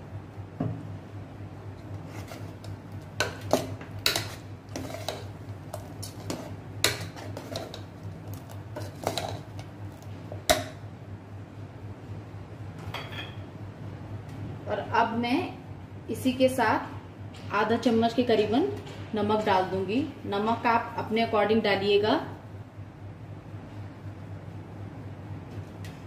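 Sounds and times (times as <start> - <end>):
ladle clinking and scraping pot: 1.9 - 9.6.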